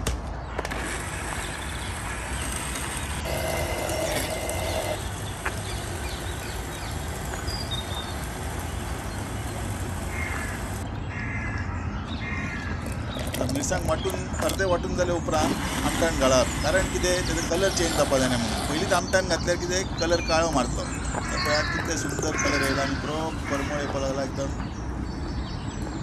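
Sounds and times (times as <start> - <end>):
blender running: 0.8 - 10.8.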